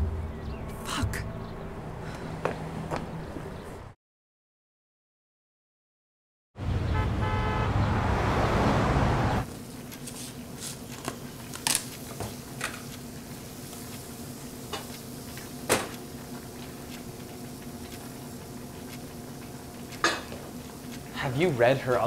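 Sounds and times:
kitchen appliances humming: 0:08.0 - 0:22.0.

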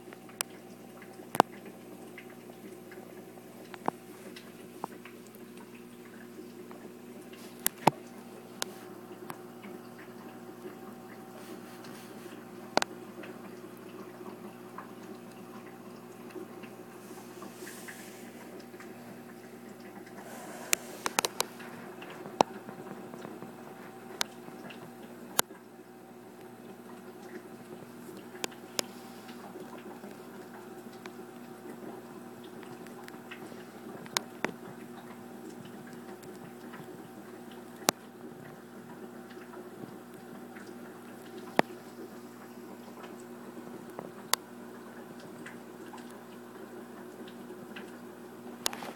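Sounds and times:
water dripping and trickling: 0:00.0 - 0:48.7
aquarium equipment humming: 0:00.0 - 0:48.9
light bubbling: 0:00.1 - 0:48.9
small ticks: 0:32.4 - 0:38.0.

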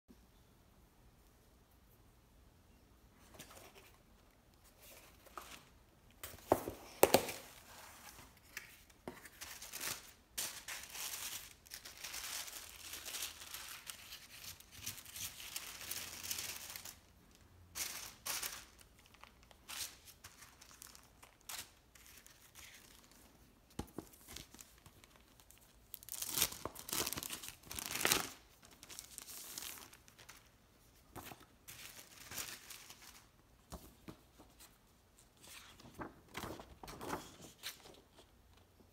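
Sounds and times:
tissue paper crinkling: 0:07.2 - 0:17.1, 0:17.7 - 0:23.3, 0:24.0 - 0:33.4
plastic bags rustling: 0:09.6 - 0:17.1, 0:17.7 - 0:21.5.

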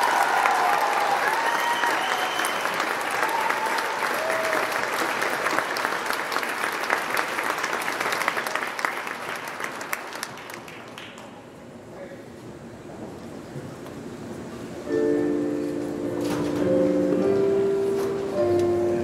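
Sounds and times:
audience applauding: 0:00.0 - 0:11.4.

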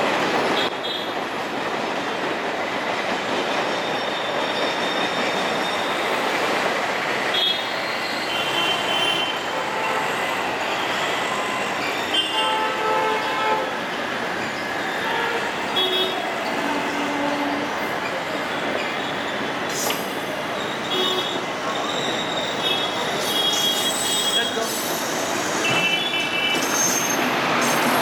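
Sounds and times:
train wheels rumbling on rail: 0:00.0 - 0:28.0
high wheel squeals: 0:03.8 - 0:06.3, 0:07.4 - 0:12.3, 0:14.3 - 0:28.0.

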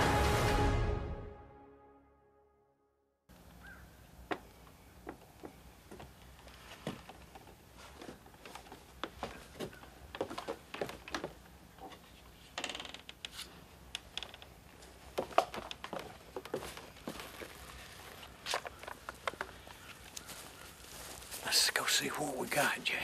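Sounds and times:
footsteps on wooden stairs: 0:04.2 - 0:12.1, 0:14.1 - 0:21.5.

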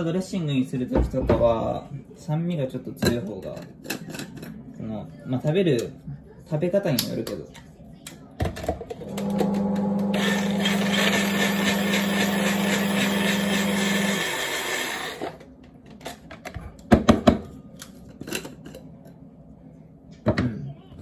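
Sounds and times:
blender motor running: 0:09.0 - 0:15.4.

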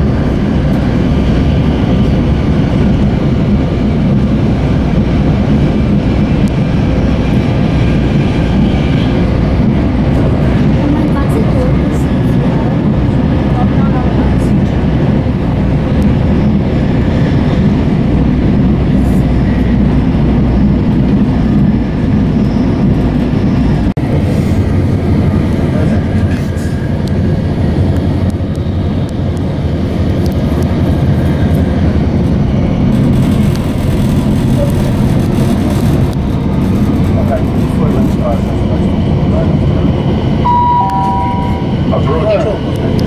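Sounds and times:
train running noise from inside: 0:00.0 - 0:43.0.

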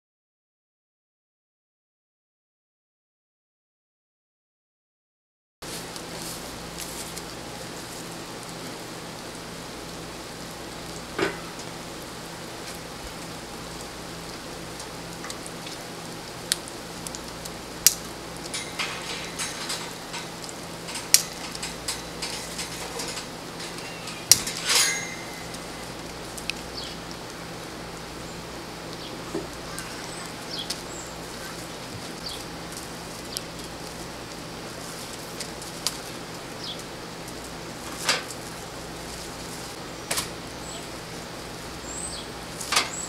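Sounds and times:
steady hiss: 0:05.6 - 0:43.0
grill grate rattling: 0:05.7 - 0:40.4, 0:41.9 - 0:43.0
metallic clicks and clanks of grill: 0:10.8 - 0:11.9, 0:14.7 - 0:28.0, 0:36.7 - 0:38.5, 0:42.1 - 0:43.0.

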